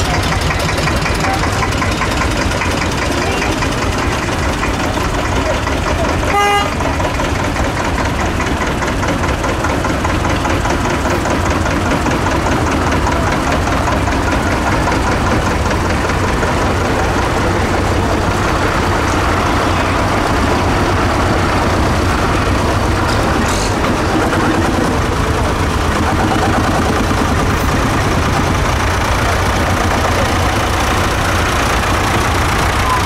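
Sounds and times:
tractors driving past: 0:00.0 - 0:33.0.

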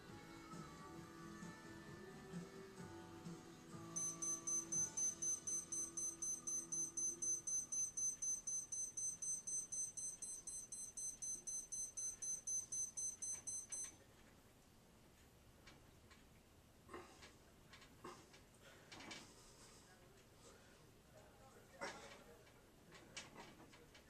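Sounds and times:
faint music: 0:00.0 - 0:24.0
rapid high-pitched electronic beeping: 0:04.0 - 0:13.9.

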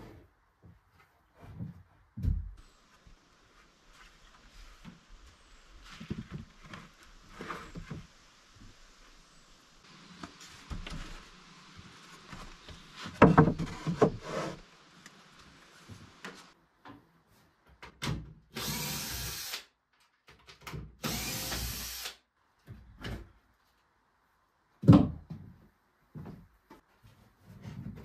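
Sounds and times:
cordless drill running: 0:18.6 - 0:19.6, 0:21.0 - 0:22.2.

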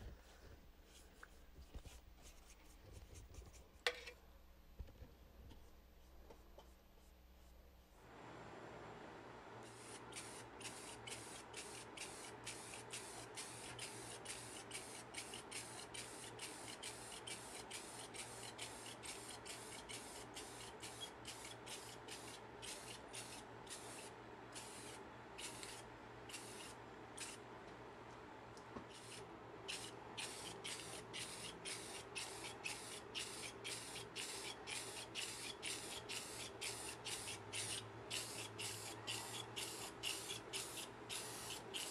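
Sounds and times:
spray bottle spritzing: 0:09.7 - 0:24.0, 0:28.9 - 0:41.9.

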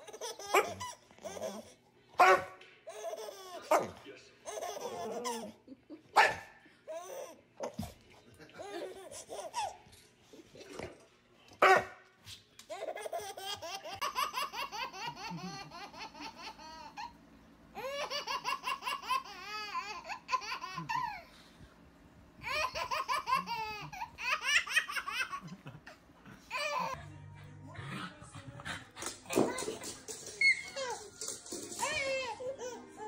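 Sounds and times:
baby laughing: 0:00.0 - 0:01.8, 0:02.9 - 0:06.0, 0:06.9 - 0:07.9, 0:08.6 - 0:09.9, 0:12.7 - 0:17.2, 0:17.8 - 0:21.4, 0:22.4 - 0:27.0.

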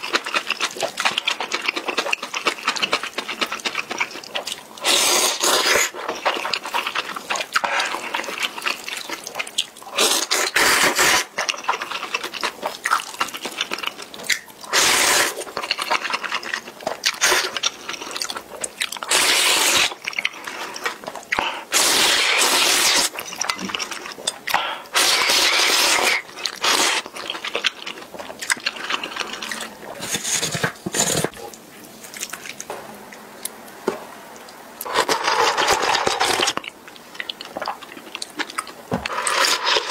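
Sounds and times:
noodles being slurped: 0:00.0 - 0:24.2, 0:24.8 - 0:31.3, 0:39.1 - 0:39.9
quiet eating sounds: 0:00.0 - 0:39.9.

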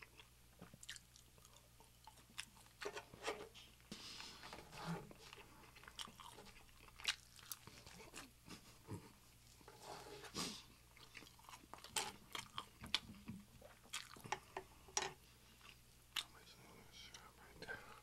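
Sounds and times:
person chewing food: 0:00.0 - 0:02.9, 0:05.1 - 0:09.7, 0:10.4 - 0:16.4.

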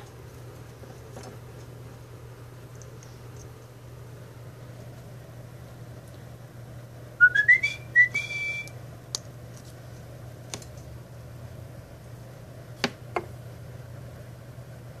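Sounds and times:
parrot whistling: 0:07.2 - 0:08.7.

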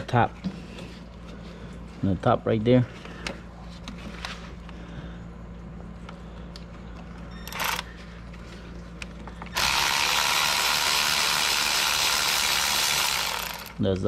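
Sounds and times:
rapid ratcheting: 0:09.6 - 0:13.8
ratchet clicking: 0:09.6 - 0:13.8.

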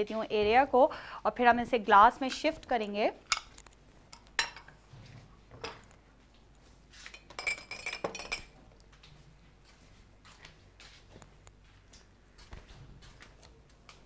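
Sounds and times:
glassware and dishes clinking: 0:07.1 - 0:08.6.

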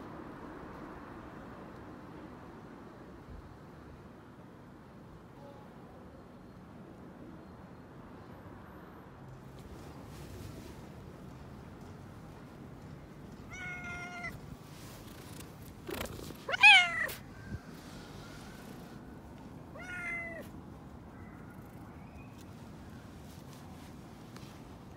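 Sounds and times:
cat meowing: 0:13.5 - 0:14.4, 0:16.4 - 0:17.3, 0:19.7 - 0:20.5.

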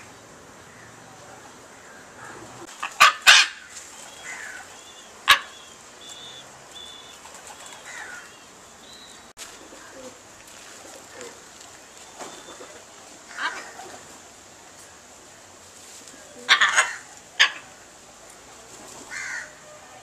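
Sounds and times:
small birds chirping: 0:03.7 - 0:10.2, 0:11.0 - 0:13.0.

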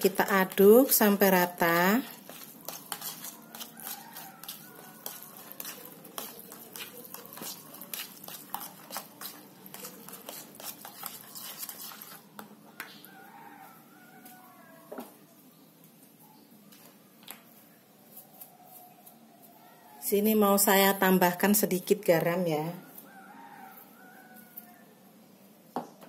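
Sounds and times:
fork stirring in plastic bowl: 0:00.1 - 0:12.6
fork clicks and scrapes: 0:02.1 - 0:12.5.

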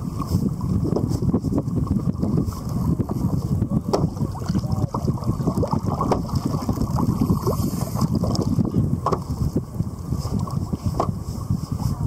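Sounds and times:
water sloshing against kayak: 0:00.0 - 0:12.0
wind buffeting microphone: 0:00.0 - 0:12.0.

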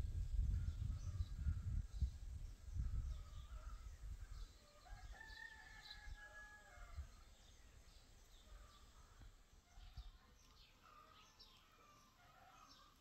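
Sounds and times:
small birds chirping: 0:00.2 - 0:13.0
faint rooster crowing: 0:03.3 - 0:07.3, 0:10.8 - 0:13.0.

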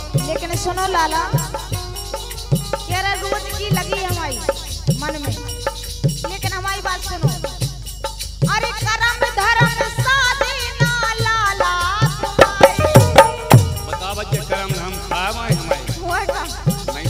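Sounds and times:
woman singing: 0:00.0 - 0:01.9, 0:02.7 - 0:07.8, 0:08.4 - 0:13.8, 0:15.8 - 0:16.9
harmonium: 0:00.0 - 0:17.0
hand drum strokes: 0:12.2 - 0:14.9
man singing: 0:12.6 - 0:17.0.

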